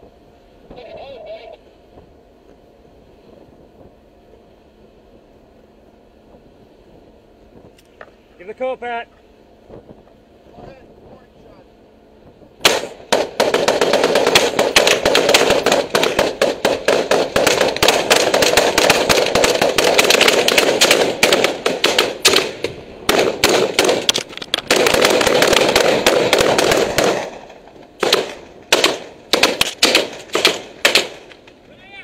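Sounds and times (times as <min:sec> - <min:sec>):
rapid rifle fire: 0:12.6 - 0:31.4.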